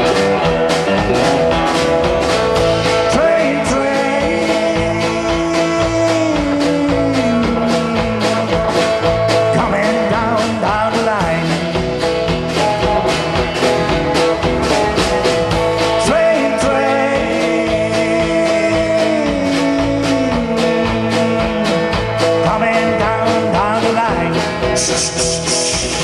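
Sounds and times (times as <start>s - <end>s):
bending guitar notes: 0.0s - 26.0s
rock band playing: 0.0s - 26.0s.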